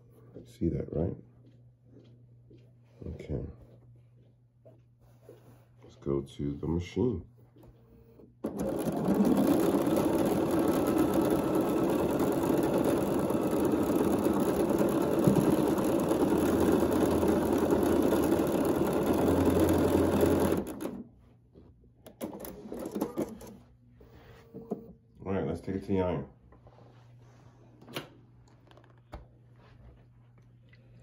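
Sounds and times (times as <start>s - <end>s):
electric sewing machine stitching: 8.4s - 21.1s, 22.1s - 23.6s.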